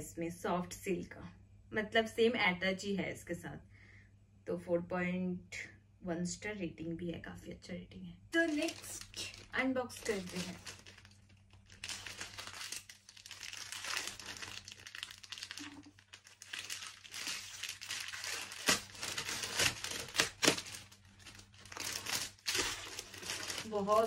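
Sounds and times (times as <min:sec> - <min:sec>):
plastic packaging crinkling: 0:08.4 - 0:24.0.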